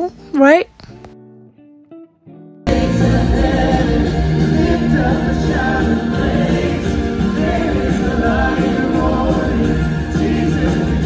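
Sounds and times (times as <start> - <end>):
acoustic guitar: 0.0 - 11.0
keyboard: 2.7 - 11.0
people singing: 2.7 - 11.0.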